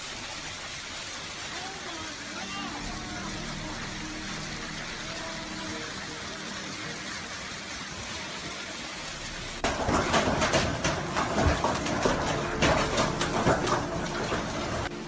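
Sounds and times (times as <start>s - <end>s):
hail and rain hissing: 0.0s - 15.0s
hailstones clattering: 9.3s - 15.0s.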